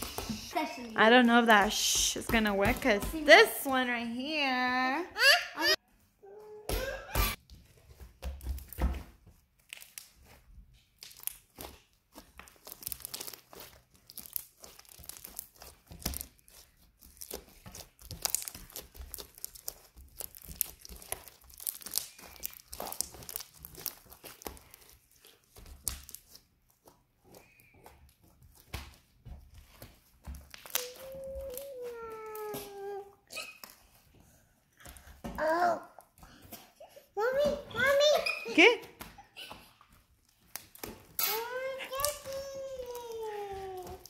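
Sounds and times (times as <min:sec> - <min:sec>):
slime squished by hand: 0:09.5 - 0:26.8.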